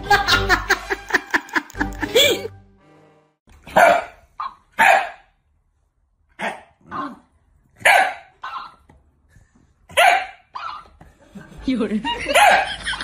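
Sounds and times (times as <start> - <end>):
dog barking: 3.7 - 5.3, 6.4 - 7.2, 7.8 - 8.8, 9.9 - 10.9, 12.3 - 12.8.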